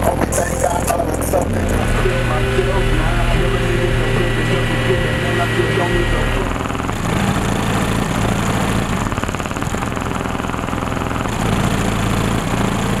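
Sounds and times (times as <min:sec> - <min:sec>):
distorted bass-heavy music: 0:00.0 - 0:09.0.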